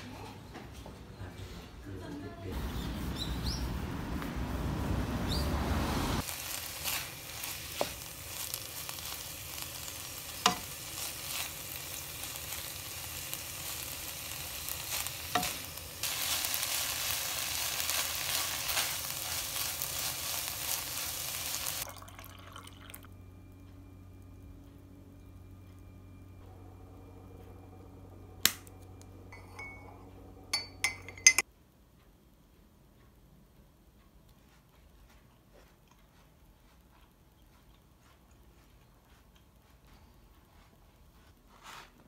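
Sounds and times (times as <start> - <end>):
vegetables sizzling in a pan: 6.1 - 21.9.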